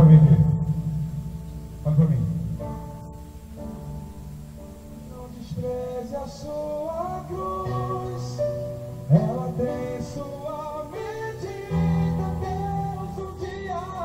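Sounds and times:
person singing long sliding notes: 5.0s - 14.0s.

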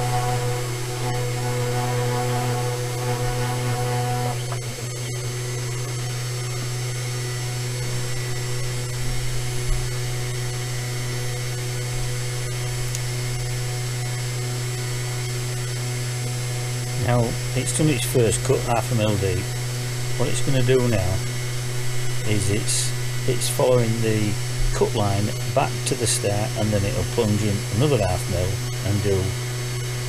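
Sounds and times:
higher machine tones: 0.0s - 6.1s
router spindle humming: 0.0s - 30.0s.

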